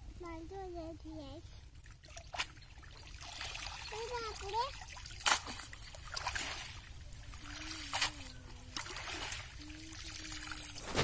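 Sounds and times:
water dripping from net: 1.8 - 10.5
sharp water splashes: 1.8 - 11.0
faint wavering low tone: 7.0 - 11.0.

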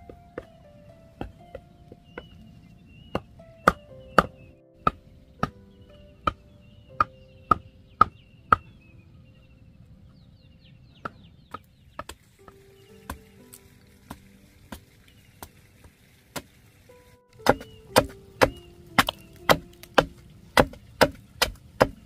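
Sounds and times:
wood striking bamboo stakes: 17.4 - 22.0.

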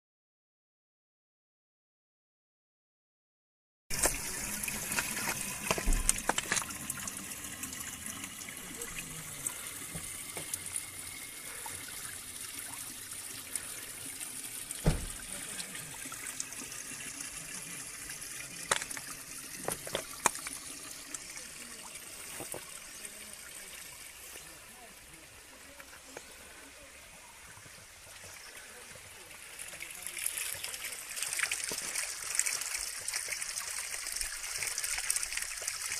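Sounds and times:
water splashing onto rocks: 3.9 - 7.2, 14.6 - 15.9, 18.6 - 23.2, 28.6 - 35.9
sharp knocks: 14.8 - 15.2.

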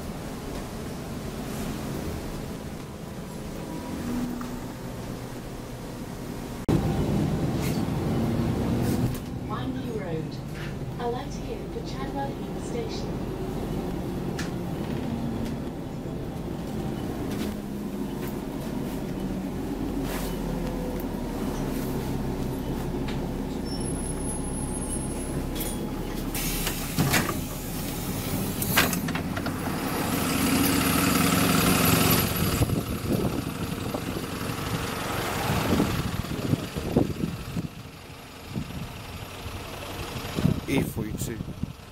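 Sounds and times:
bus engine running: 0.0 - 41.9
burst of air as doors open: 26.3 - 29.0.

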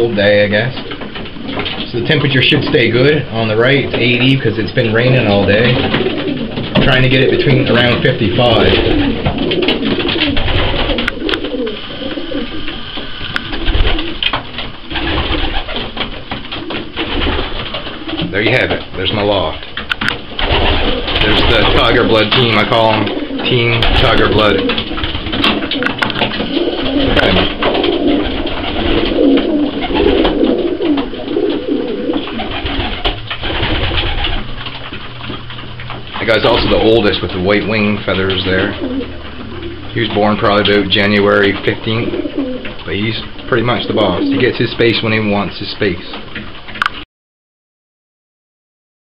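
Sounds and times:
pigeons cooing: 0.0 - 47.0
sharp clicks: 19.6 - 21.7.

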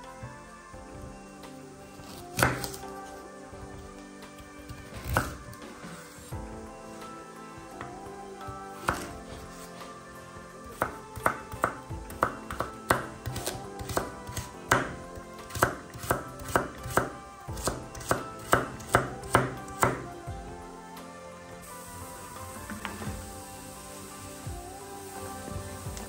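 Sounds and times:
knife chopping on cutting board: 2.1 - 2.8, 4.8 - 5.5, 8.8 - 9.2, 10.7 - 20.0.

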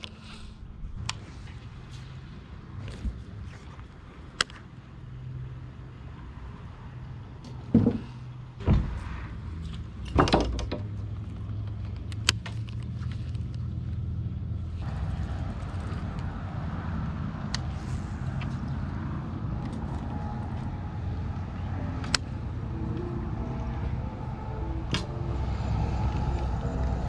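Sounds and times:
boat motor humming: 14.8 - 27.0.

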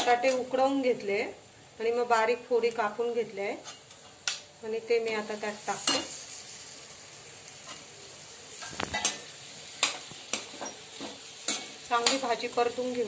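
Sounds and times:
potatoes sizzling in pan: 0.0 - 13.0
metal spoon scraping pan: 8.6 - 12.3.

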